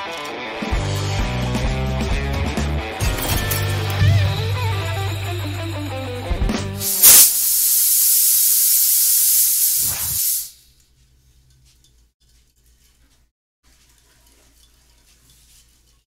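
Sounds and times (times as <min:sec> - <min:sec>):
loud hiss of smoke blasting: 0:06.8 - 0:10.6.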